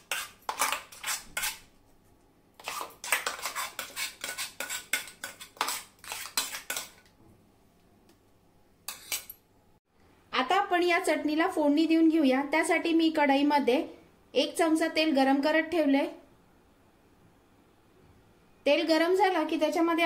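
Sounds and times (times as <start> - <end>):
steel spoon scraping metal jar: 0.0 - 1.6, 2.6 - 7.0, 8.9 - 9.4.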